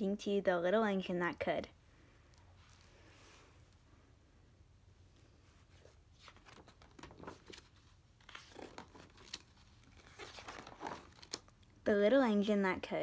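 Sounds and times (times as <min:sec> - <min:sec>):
book pages turning: 0:05.6 - 0:11.6.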